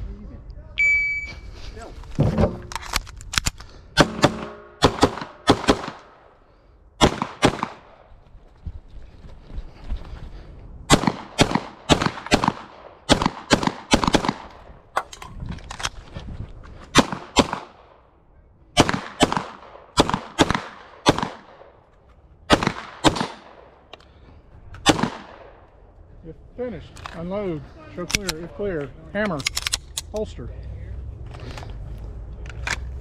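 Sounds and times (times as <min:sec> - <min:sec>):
rapid pistol fire: 0:04.0 - 0:06.0, 0:07.0 - 0:07.9, 0:10.9 - 0:14.5, 0:18.8 - 0:21.6, 0:22.5 - 0:23.6.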